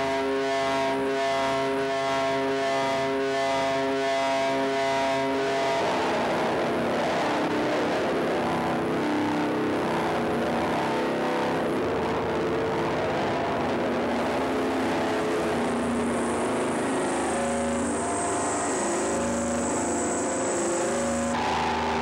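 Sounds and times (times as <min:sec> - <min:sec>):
distorted noise music: 0:00.0 - 0:22.0
drone tones: 0:00.1 - 0:22.0
held chord of steady tones: 0:14.2 - 0:22.0.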